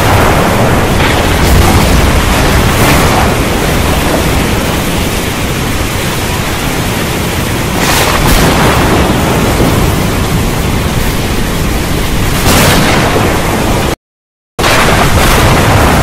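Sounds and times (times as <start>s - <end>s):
heavy rain pouring: 0.0s - 14.0s, 14.6s - 16.0s
thunder rumbling: 0.0s - 14.0s, 14.6s - 16.0s.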